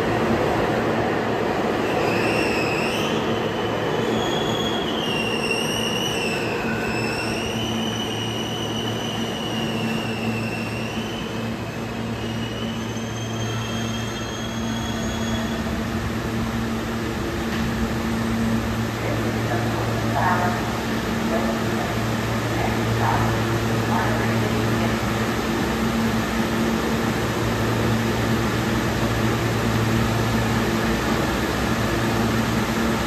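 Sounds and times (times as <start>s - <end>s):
train rumbling: 0.0s - 33.0s
train wheels squealing: 1.8s - 15.8s.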